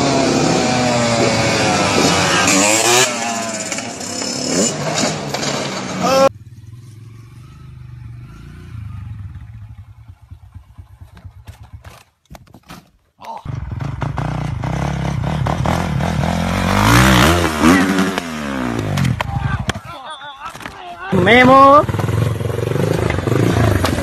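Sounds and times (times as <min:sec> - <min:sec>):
dirt bike engine revving: 0:00.0 - 0:11.9, 0:13.5 - 0:19.8, 0:21.1 - 0:24.0.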